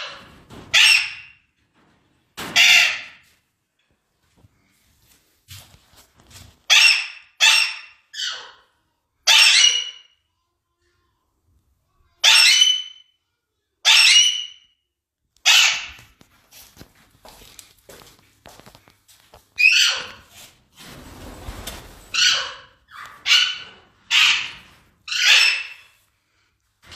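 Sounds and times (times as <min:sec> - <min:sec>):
parakeets calling loudly: 0:09.3 - 0:10.1, 0:22.1 - 0:26.0.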